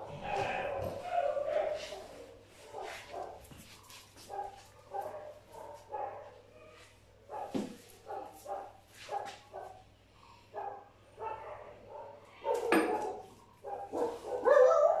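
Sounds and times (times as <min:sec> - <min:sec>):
dog barking and yipping: 0:00.0 - 0:02.2, 0:10.6 - 0:15.0
dog crying: 0:14.4 - 0:15.0.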